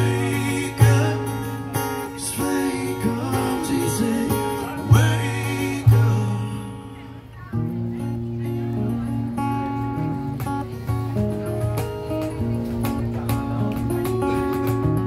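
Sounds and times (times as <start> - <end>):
man singing: 0.0 - 6.9
strummed acoustic guitar: 0.0 - 15.0.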